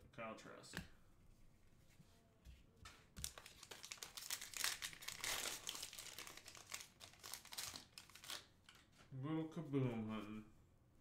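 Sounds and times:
plastic wrapper crinkling and tearing: 0:03.2 - 0:08.9.

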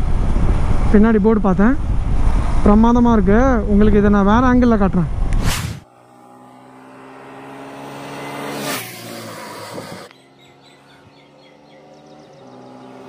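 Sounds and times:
wind on microphone: 0:00.0 - 0:05.5, 0:09.3 - 0:10.1
steady engine hum: 0:00.0 - 0:13.0
vehicle engine passing by: 0:05.4 - 0:13.0.

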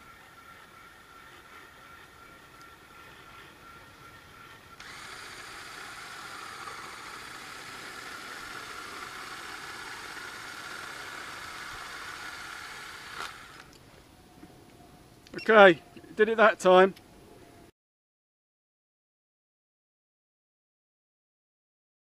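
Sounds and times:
micro-drill mechanical whine: 0:00.0 - 0:13.8.

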